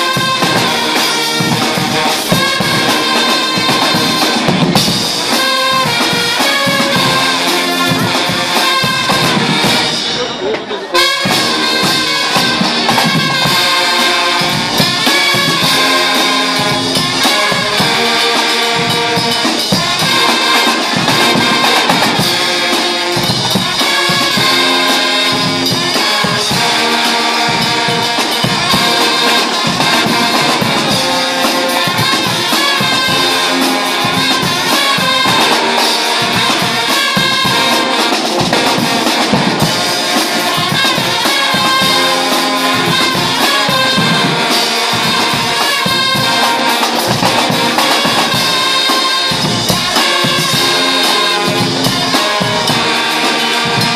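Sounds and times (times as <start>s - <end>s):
brass band playing: 0.0s - 53.9s
drum beat: 0.0s - 53.9s.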